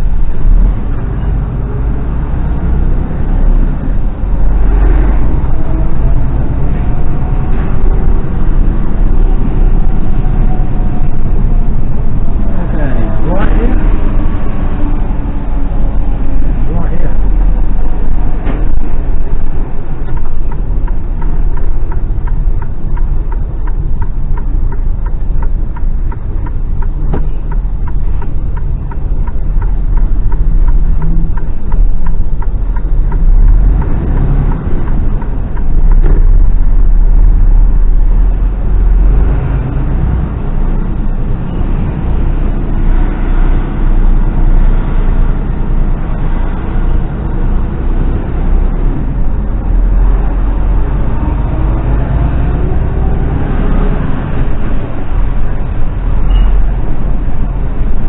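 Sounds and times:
lorry diesel engine rumble: 0.0 - 58.0
road noise: 0.0 - 58.0
fast regular ticking: 19.2 - 36.7.

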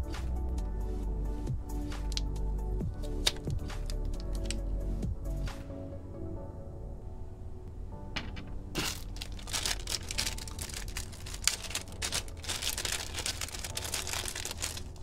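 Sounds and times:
plastic packaging crinkling: 3.2 - 4.6, 8.8 - 15.0.

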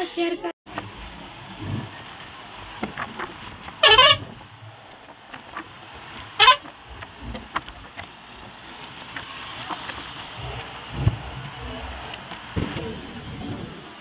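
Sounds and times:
road and engine noise: 0.7 - 14.0
vehicle horn honking: 3.8 - 4.3, 6.4 - 6.7.

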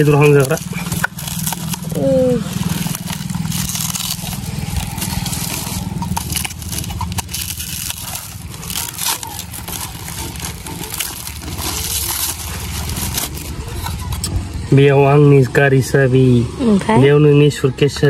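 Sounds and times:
plastic wrapping crinkling: 0.0 - 14.3.

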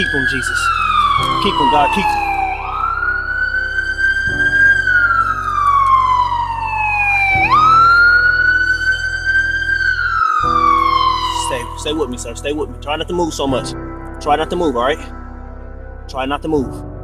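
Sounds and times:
emergency siren wailing: 0.0 - 13.4.

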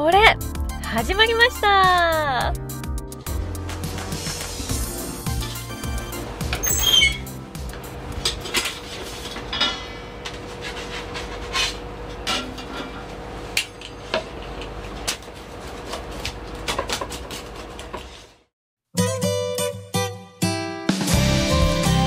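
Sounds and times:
utensils and pans clattering: 8.2 - 14.3.

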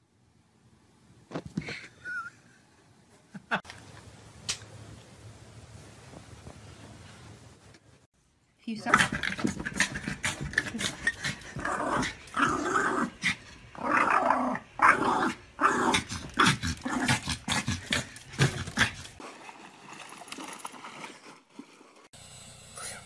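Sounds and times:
dog growling and barking: 8.8 - 19.2.

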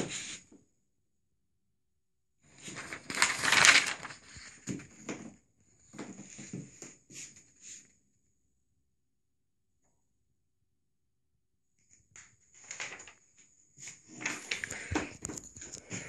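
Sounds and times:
paper crinkling and rustling: 2.6 - 6.5, 12.1 - 16.0.

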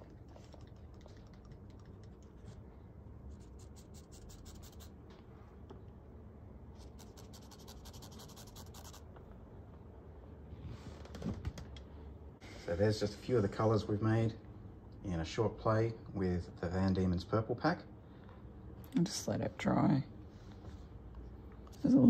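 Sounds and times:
cotton swab scratching on paper: 3.3 - 4.9, 6.8 - 9.1.

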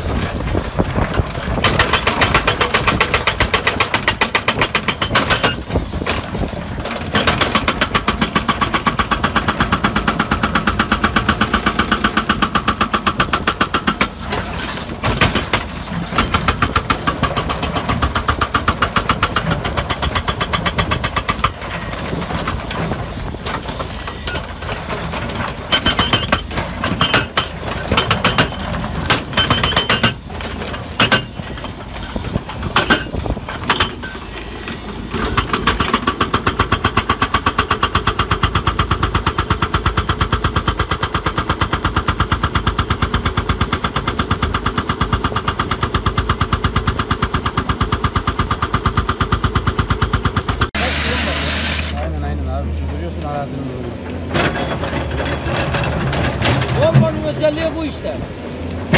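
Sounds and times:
hydraulic breaker hammering rock: 0.8 - 34.2, 35.1 - 52.0.

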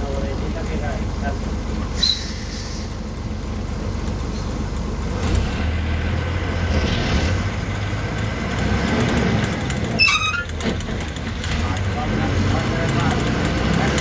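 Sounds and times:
bus engine drone: 0.0 - 14.0.

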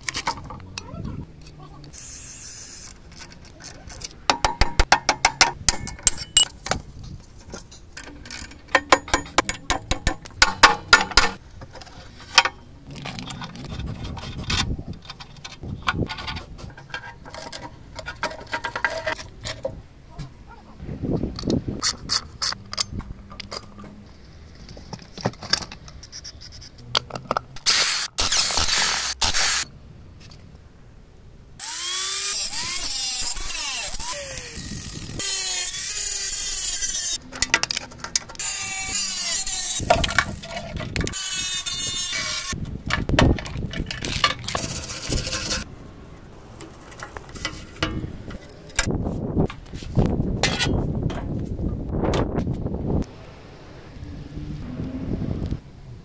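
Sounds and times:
metal parts knocking: 4.0 - 6.8, 7.4 - 11.4.

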